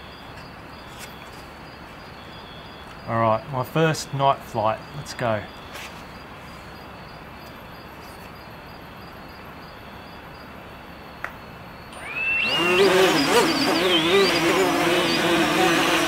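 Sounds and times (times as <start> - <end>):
drone motors buzzing: 11.9 - 16.0.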